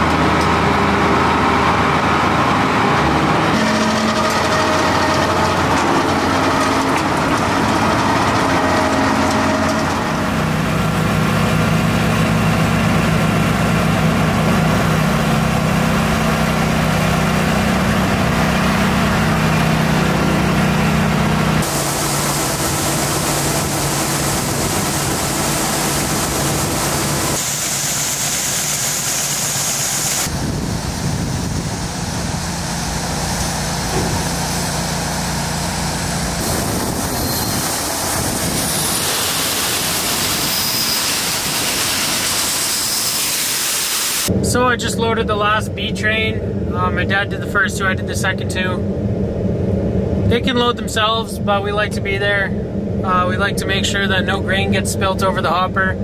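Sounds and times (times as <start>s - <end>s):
grain auger running: 0.0s - 44.3s
engine drone: 0.0s - 56.0s.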